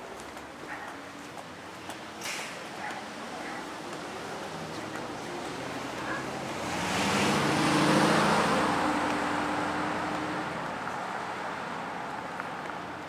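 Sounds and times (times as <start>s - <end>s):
car driving past: 4.0s - 12.7s.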